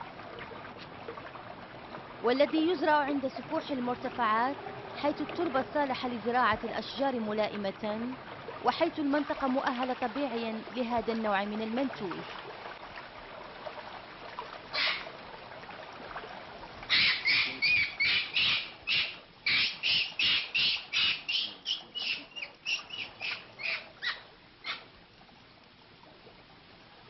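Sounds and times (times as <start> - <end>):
animal calling: 14.7 - 15.1, 16.9 - 24.9.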